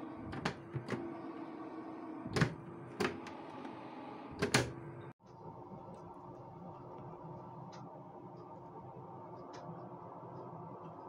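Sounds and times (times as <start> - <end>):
dehydrator fan hum: 0.0 - 11.0.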